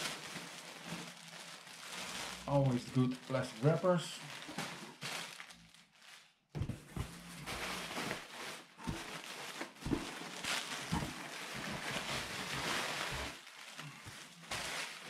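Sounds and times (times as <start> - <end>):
plastic wrapping crinkling: 0.0 - 15.0.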